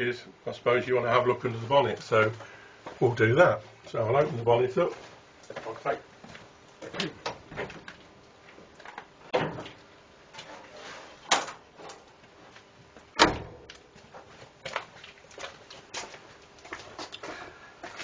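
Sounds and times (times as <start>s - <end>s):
heavy thump of bonnet panel: 13.2s - 13.7s.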